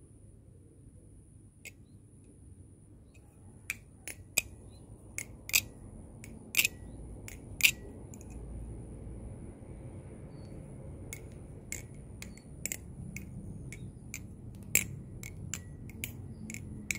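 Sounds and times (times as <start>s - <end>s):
butterfly knife clicking: 3.6s - 8.5s, 10.4s - 16.9s.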